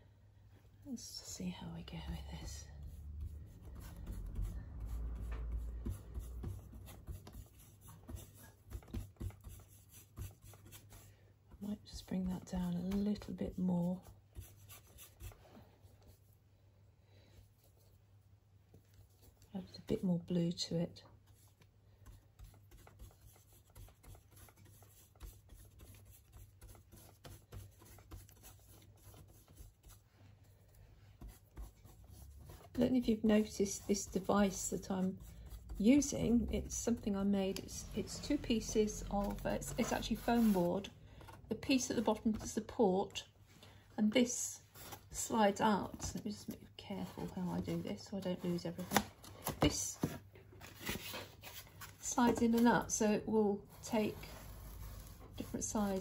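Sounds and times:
paintbrush scratchy strokes: 0:21.3 - 0:40.9, 0:53.7 - 0:56.0.

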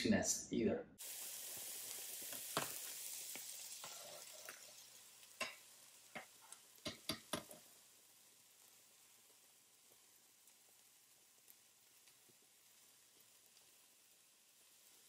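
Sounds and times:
water bubbling hiss: 0:01.0 - 0:05.6.

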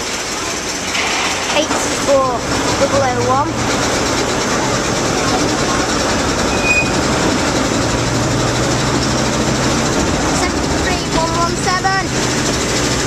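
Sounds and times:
train wheels rumbling on track: 0:00.0 - 0:13.0
faint squeal: 0:06.5 - 0:07.0.

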